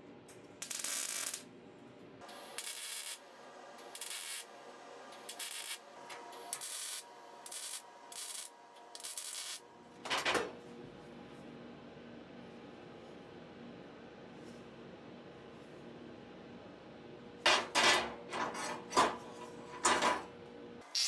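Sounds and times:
welder crackling bursts: 0.6s - 1.4s, 2.2s - 9.6s.

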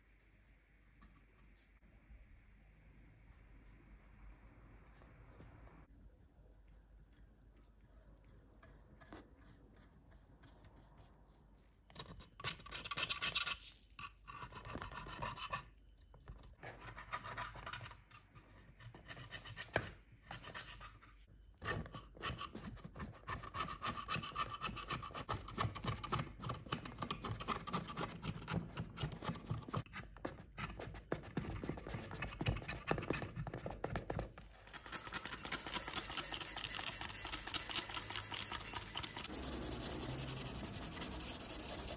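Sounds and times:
metal tool scraping metal: 34.6s - 41.9s.

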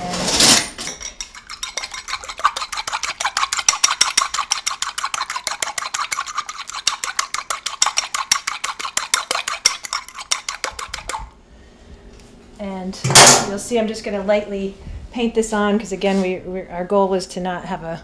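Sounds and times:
fork beating egg in bowl: 0.9s - 11.3s.

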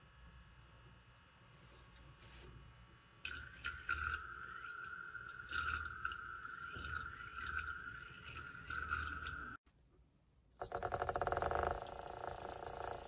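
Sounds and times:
magnetic stirrer whine: 2.5s - 9.6s
water gurgling and splashing: 3.3s - 9.6s.

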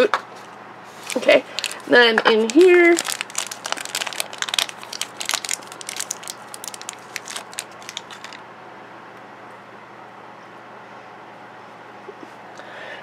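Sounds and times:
plastic wrapper crinkling: 1.0s - 8.4s.

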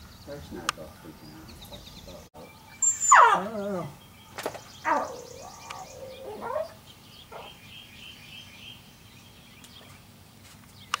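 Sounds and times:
bird chirping: 0.0s - 11.0s
dog whining: 2.8s - 4.0s, 4.8s - 7.6s.

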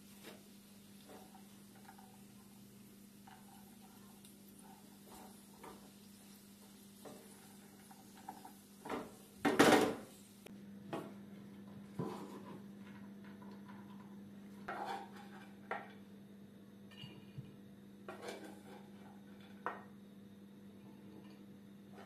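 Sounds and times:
wooden spoon scraping a frying pan: 1.0s - 2.6s, 3.2s - 6.0s, 12.0s - 12.6s, 14.6s - 15.6s, 18.1s - 19.4s.

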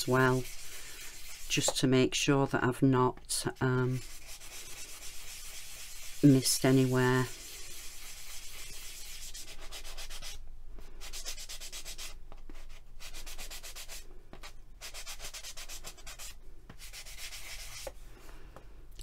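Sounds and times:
sanding pad scratching: 0.0s - 1.8s, 3.8s - 10.4s, 11.0s - 12.2s, 14.8s - 17.9s.

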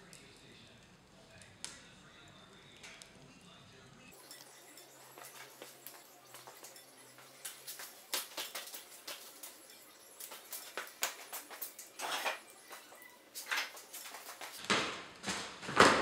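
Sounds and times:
scuffing noise: 5.2s - 9.6s, 10.2s - 14.6s.

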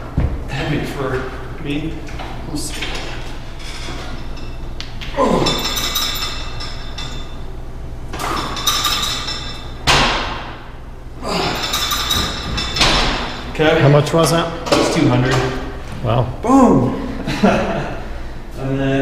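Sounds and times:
steel plates clinking: 5.4s - 7.5s, 8.3s - 9.8s, 11.4s - 13.6s.

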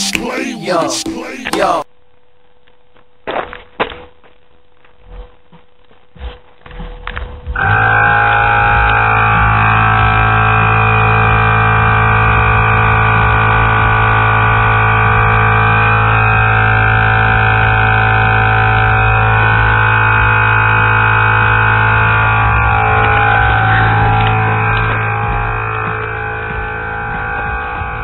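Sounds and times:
low hum: 7.4s - 28.0s.

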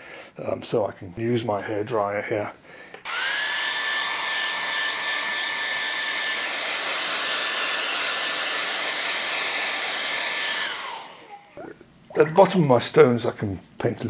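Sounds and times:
hair dryer running: 3.0s - 11.5s.

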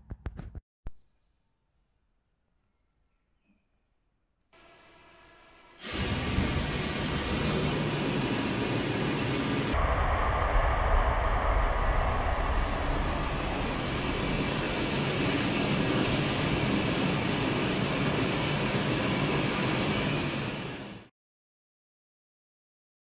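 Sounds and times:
gas burner flames rushing: 5.8s - 21.1s.

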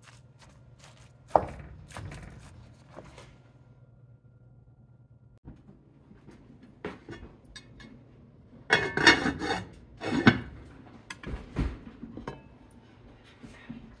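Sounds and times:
pot lids scraping and rattling: 8.7s - 10.7s.

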